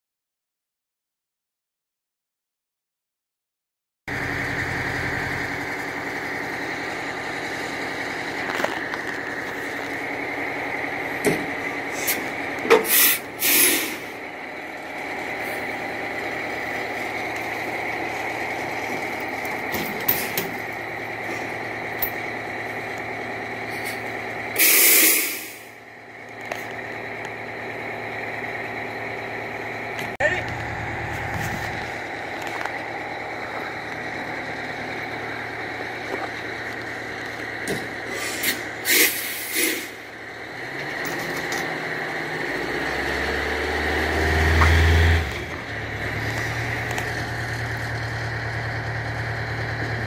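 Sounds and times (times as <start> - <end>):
diesel truck engine running: 4.1 - 50.0
air brake hisses: 11.9 - 14.1, 24.6 - 25.8, 38.1 - 40.0.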